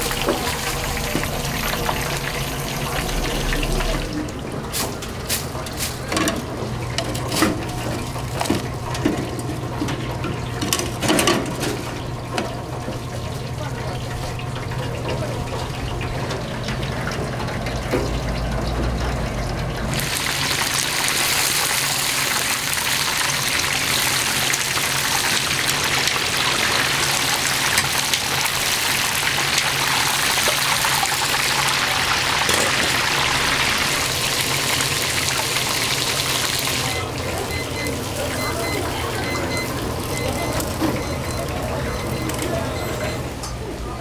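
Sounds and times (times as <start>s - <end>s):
steady low hum: 0.0s - 5.6s
water running from tap: 0.0s - 42.4s.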